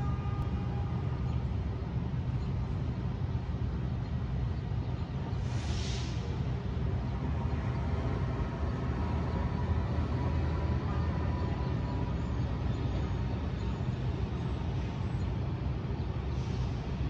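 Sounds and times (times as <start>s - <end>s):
low rumble of city traffic: 0.0s - 17.0s.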